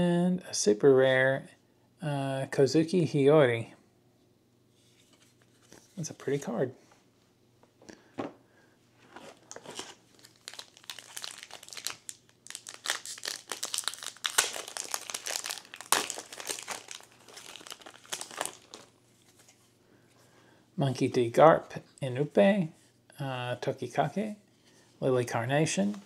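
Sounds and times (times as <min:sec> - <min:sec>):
foil wrapper crinkling and tearing: 0:09.4 - 0:19.0.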